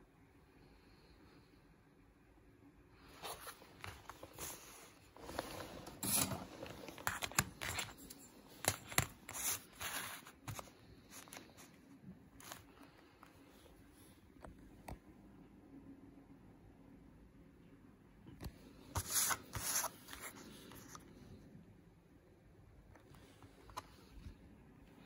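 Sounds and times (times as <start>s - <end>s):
plastic keypad sheet crinkling: 3.8s - 11.7s.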